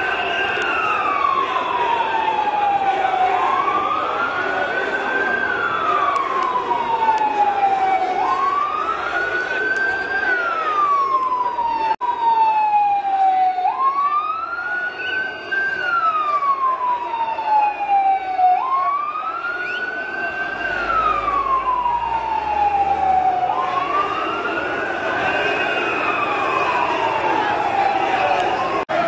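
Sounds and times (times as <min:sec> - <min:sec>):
siren wailing: 0:00.0 - 0:29.0.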